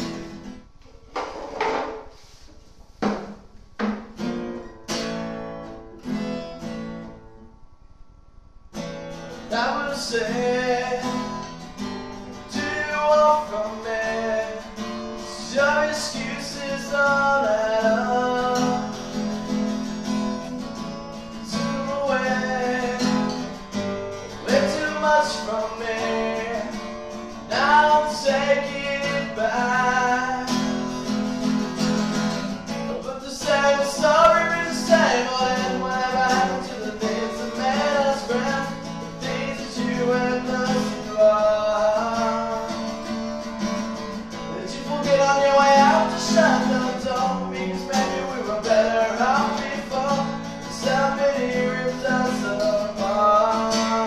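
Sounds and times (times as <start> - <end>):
acoustic guitar: 0.0 - 54.0
person singing: 9.5 - 11.5, 12.5 - 19.2, 21.4 - 23.6, 24.4 - 26.8, 27.5 - 30.9, 32.9 - 42.8, 44.6 - 54.0.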